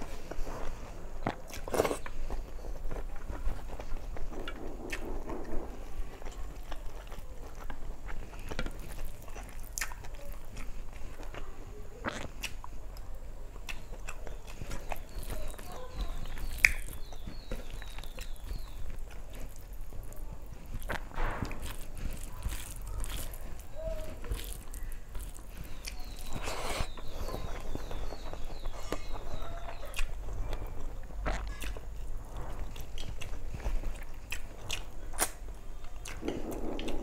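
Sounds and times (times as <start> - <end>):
chewing and wet mouth clicks: 6.2 - 11.4, 12.0 - 37.0
fingers mixing food on steel plate: 12.3 - 30.2.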